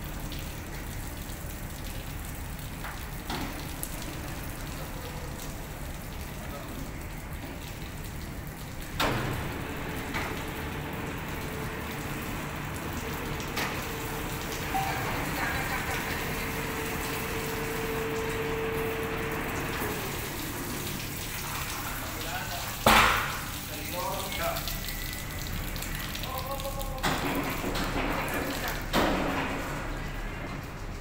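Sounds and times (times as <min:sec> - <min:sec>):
steady hum: 0:00.0 - 0:23.8
water dripping onto concrete: 0:00.0 - 0:31.0.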